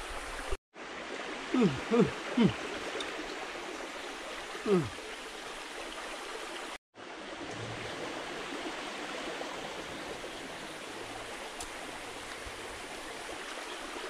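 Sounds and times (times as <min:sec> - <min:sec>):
stream running over rocks: 0:00.0 - 0:14.0.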